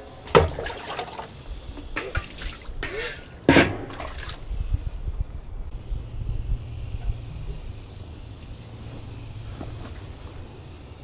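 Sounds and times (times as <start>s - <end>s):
water splashing and dripping: 0.2s - 4.5s.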